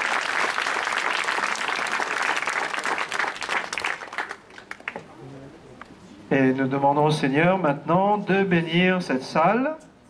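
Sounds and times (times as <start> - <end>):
crowd applauding: 0.0 - 5.1.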